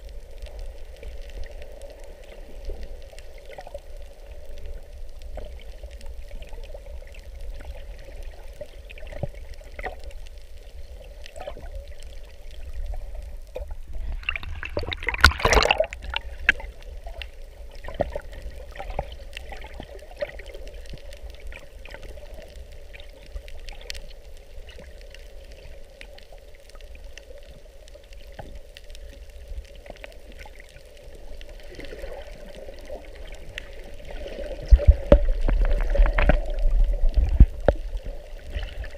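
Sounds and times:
faint steady hum: 0:00.0 - 0:38.9
low underwater rumble: 0:00.0 - 0:38.9
rush of water: 0:10.9 - 0:24.9, 0:29.9 - 0:38.9.

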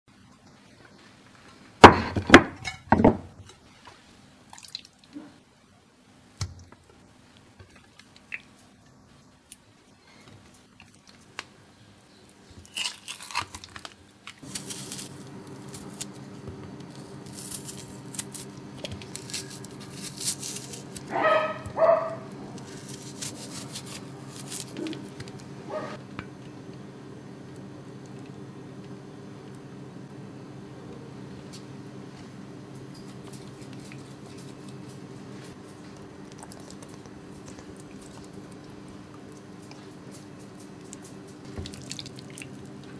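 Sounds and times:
steady low hum: 0:14.3 - 0:42.9
squishy handling of raw meat: 0:33.2 - 0:42.9.

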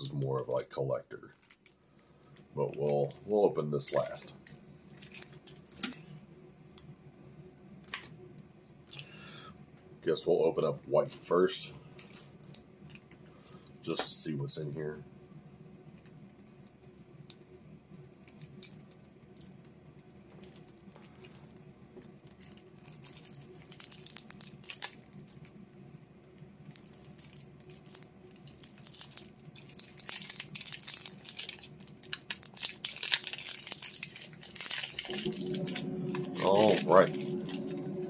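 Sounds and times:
plastic shrink-wrap crinkling and tearing: 0:00.0 - 0:06.1, 0:07.8 - 0:08.1, 0:10.6 - 0:14.0, 0:18.1 - 0:25.6, 0:26.4 - 0:37.8.

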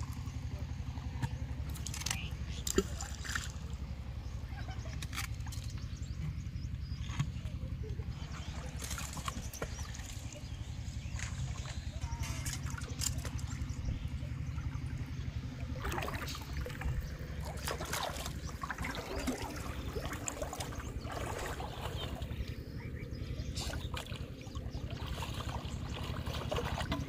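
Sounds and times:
water splashing from wading: 0:00.0 - 0:05.8, 0:08.1 - 0:27.0
steady low rumble: 0:00.0 - 0:27.0.

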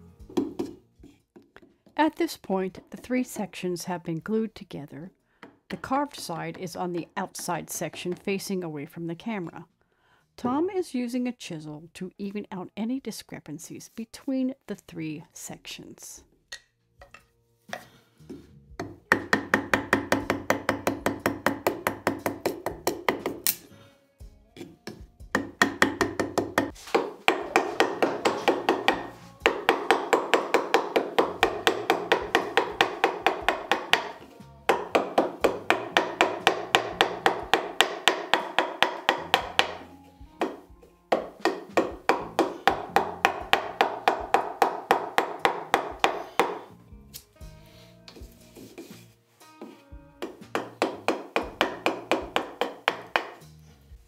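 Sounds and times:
mallet tapping a chisel into wood: 0:00.3 - 0:00.8, 0:16.5 - 0:23.6, 0:24.6 - 0:46.7, 0:49.6 - 0:53.4.

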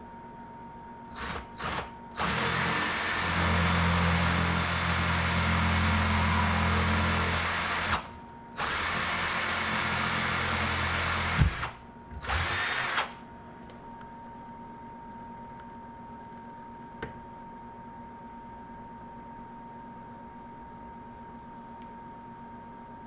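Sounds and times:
cordless drill whining: 0:01.1 - 0:13.2.

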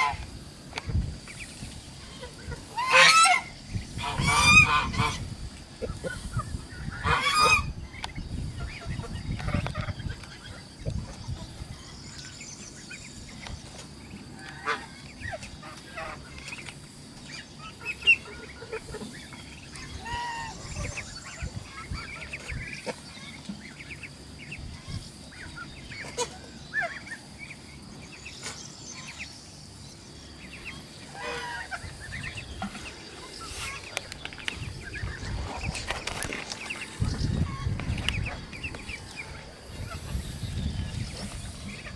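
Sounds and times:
poultry peeping: 0:00.0 - 0:41.9
poultry honking: 0:02.0 - 0:05.3, 0:06.9 - 0:07.7, 0:31.0 - 0:32.4.

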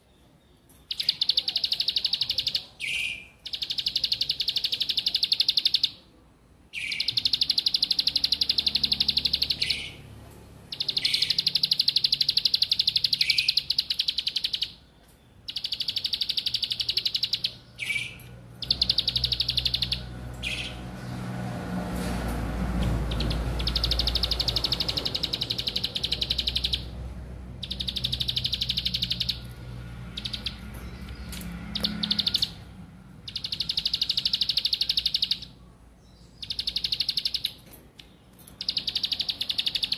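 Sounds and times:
bird singing buzzing trill: 0:27.6 - 0:32.6, 0:33.2 - 0:35.5, 0:36.4 - 0:37.7.

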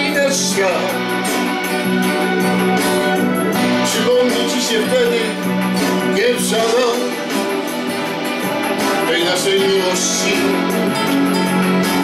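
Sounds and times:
man singing: 0:00.0 - 0:01.6, 0:03.6 - 0:07.7, 0:08.9 - 0:11.3
acoustic guitar: 0:00.0 - 0:12.0.

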